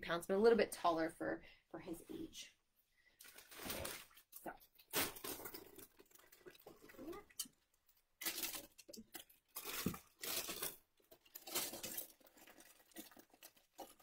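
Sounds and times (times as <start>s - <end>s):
fabric and packaging rustling: 3.2s - 7.4s, 8.2s - 14.0s.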